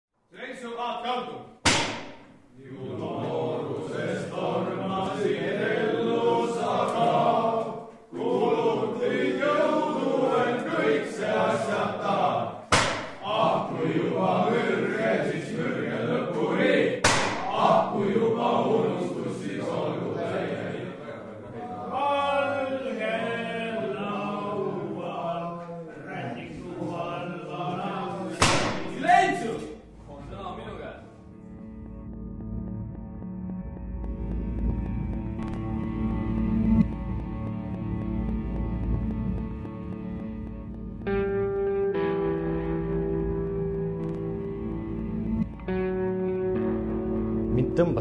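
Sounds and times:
men singing in unison: 0:02.6 - 0:29.7.

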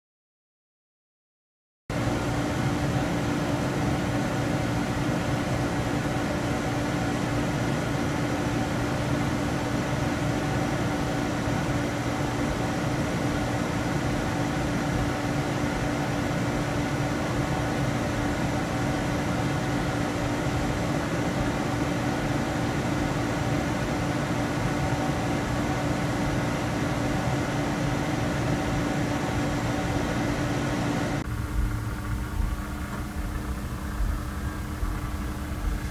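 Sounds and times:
electric motor hum: 0:26.9 - 0:35.9.

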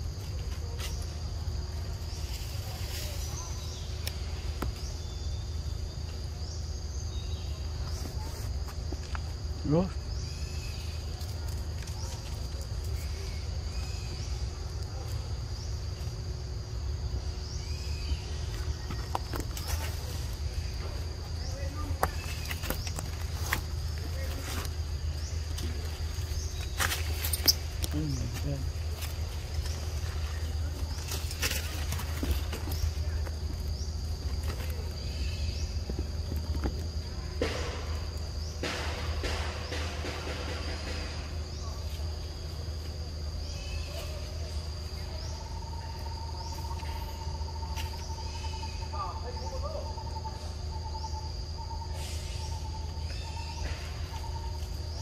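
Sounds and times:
rustling of leaf litter: 0:00.1 - 0:05.1, 0:18.4 - 0:37.1
high-pitched insect drone: 0:15.8 - 0:55.0.

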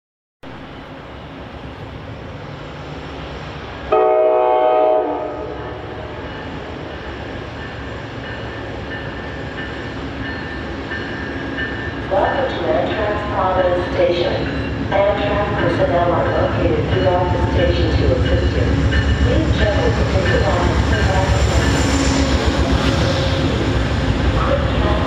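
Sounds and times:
train rumble: 0:00.4 - 0:25.0
locomotive horn blast: 0:03.9 - 0:06.2.

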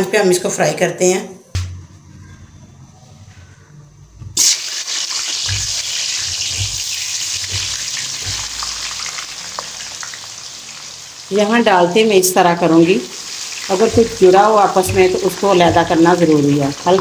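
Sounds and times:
potato slices sizzling in oil: 0:04.4 - 0:17.0.

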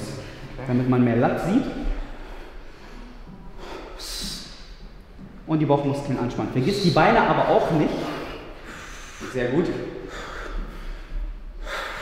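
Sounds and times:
faint room noise: 0:00.0 - 0:12.0
man breathing out through nose: 0:08.1 - 0:09.3, 0:10.0 - 0:12.0.

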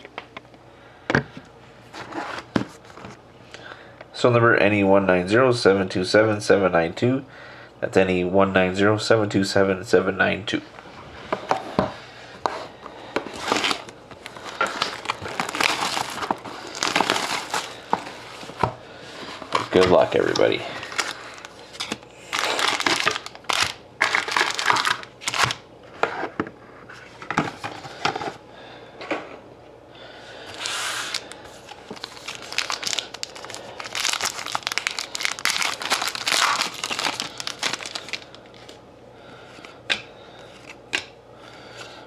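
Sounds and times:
foil wrapper crinkling and tearing: 0:13.3 - 0:18.6, 0:19.4 - 0:25.6, 0:30.5 - 0:38.8.

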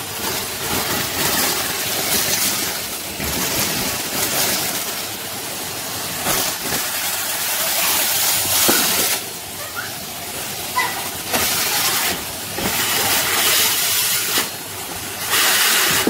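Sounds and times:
vacuum cleaner suction: 0:11.2 - 0:16.0.

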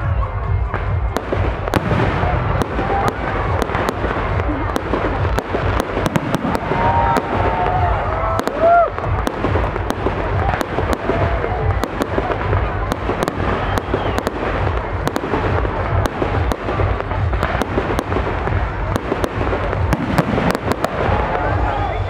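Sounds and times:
fireworks booming and cracking: 0:00.5 - 0:22.0.

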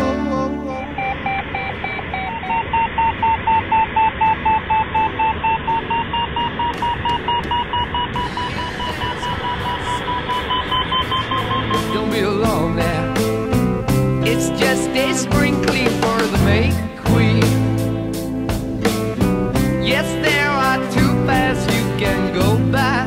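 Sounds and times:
variometer beeping: 0:00.8 - 0:12.4.

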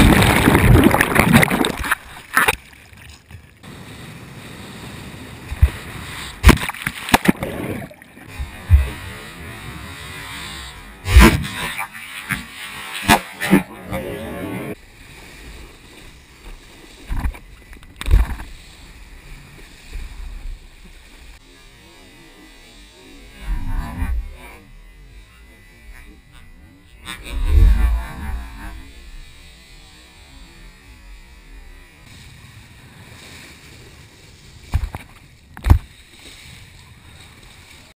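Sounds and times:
water rushing and spraying: 0:00.0 - 0:02.8
water rushing under wakeboard: 0:00.0 - 0:38.0.

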